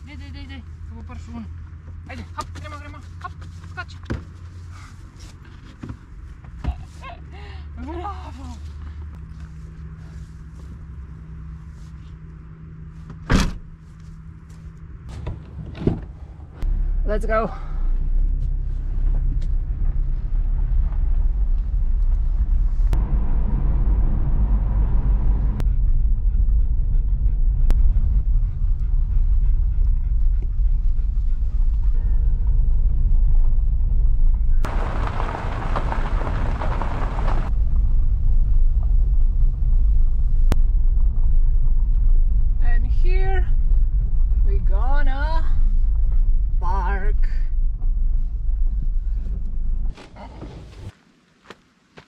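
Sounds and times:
car engine and tyres rumbling: 0:00.0 - 0:52.0
road hiss: 0:34.7 - 0:37.5.

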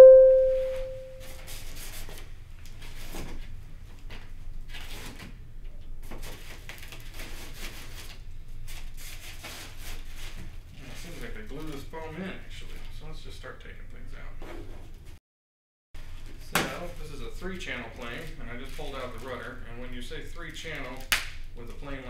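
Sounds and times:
bright ding: 0:00.0 - 0:01.2.

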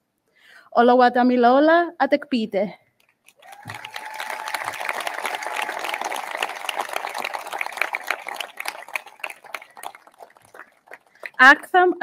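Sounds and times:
audience clapping: 0:03.3 - 0:11.6.

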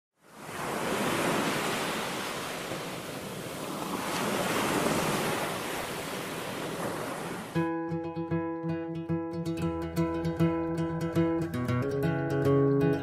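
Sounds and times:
sea surf breaking on beach: 0:00.2 - 0:07.6.

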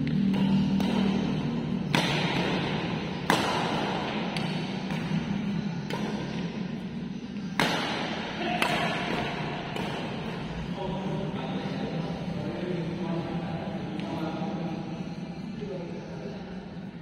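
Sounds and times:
racket smacking shuttlecock: 0:00.1 - 0:06.6, 0:07.4 - 0:10.5.

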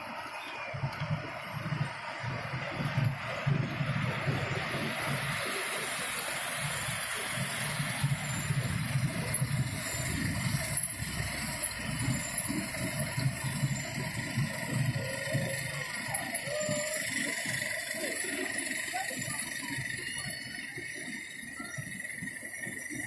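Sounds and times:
miniature train rolling on track: 0:00.0 - 0:23.0.

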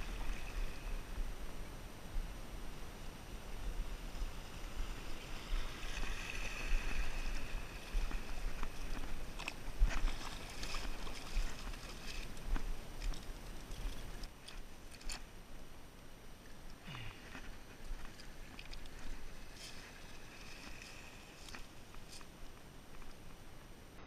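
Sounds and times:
waves lapping on pebbles: 0:00.0 - 0:01.6, 0:02.9 - 0:15.3, 0:17.2 - 0:23.1
wind on microphone: 0:00.0 - 0:14.3.

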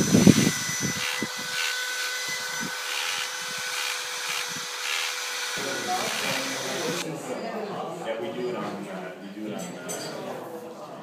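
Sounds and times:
engraving tool grinding stone: 0:00.0 - 0:07.0.

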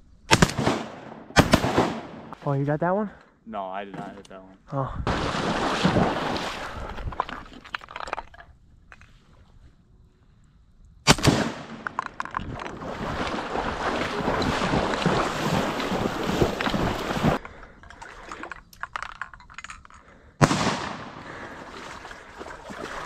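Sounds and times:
shotgun blasts: 0:00.3 - 0:02.4, 0:11.0 - 0:12.0, 0:20.4 - 0:21.4.

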